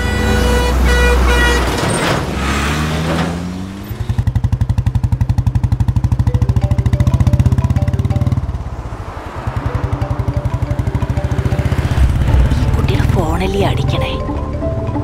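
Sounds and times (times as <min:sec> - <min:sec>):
motorcycle engine pulsing: 0:04.1 - 0:14.7
lorry rushing past: 0:07.4 - 0:14.9.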